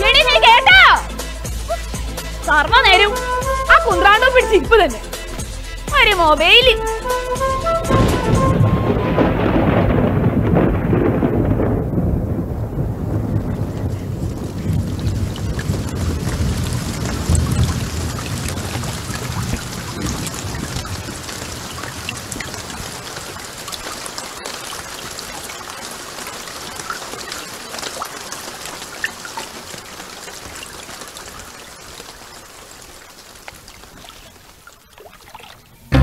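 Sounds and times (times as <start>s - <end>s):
rain hissing with drops: 0.0s - 36.0s
low rumble: 7.4s - 20.9s.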